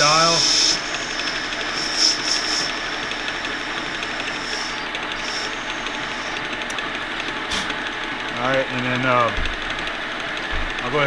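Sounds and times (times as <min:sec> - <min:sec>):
thin high whine of cutting: 0:00.0 - 0:07.8
metal lathe running: 0:00.0 - 0:11.0.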